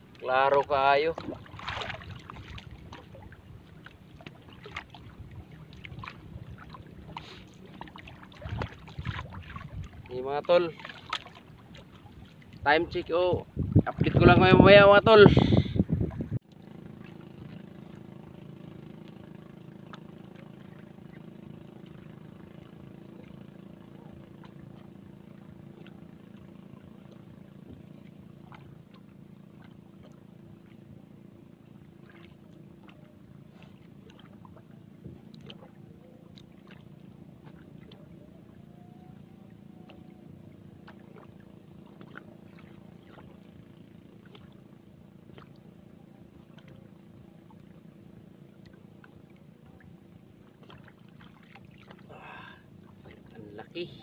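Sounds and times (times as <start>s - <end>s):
small water splashes: 0.0s - 14.4s, 16.1s - 54.0s
distant motor humming: 16.6s - 54.0s.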